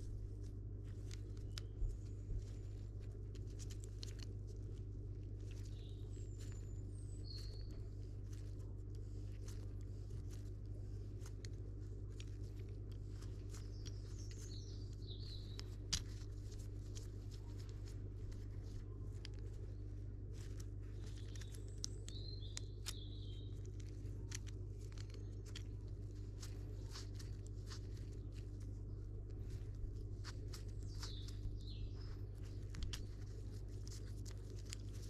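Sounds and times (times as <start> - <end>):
steady low hum: 0.0 - 35.0
bird chirping: 5.5 - 8.5, 13.2 - 15.8, 20.8 - 24.1, 27.8 - 33.6.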